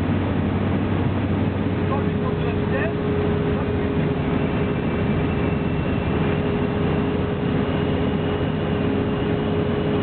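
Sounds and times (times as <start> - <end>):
aircraft piston engine: 0.0 - 10.0
constant whine: 0.0 - 10.0.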